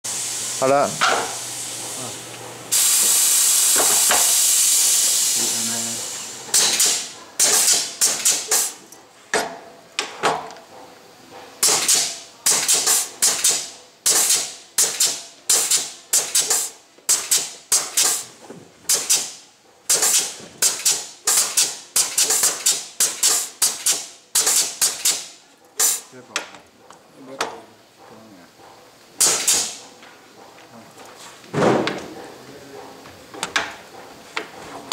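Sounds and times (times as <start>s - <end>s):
hiss of escaping air: 0.1s - 8.8s, 11.6s - 18.3s, 19.9s - 26.1s
pneumatic air exhaust bursts: 0.1s - 8.8s, 11.6s - 26.1s, 29.2s - 29.9s.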